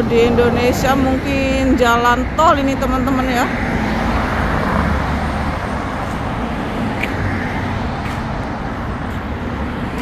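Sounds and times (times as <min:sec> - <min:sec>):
road traffic noise: 0:00.0 - 0:10.0.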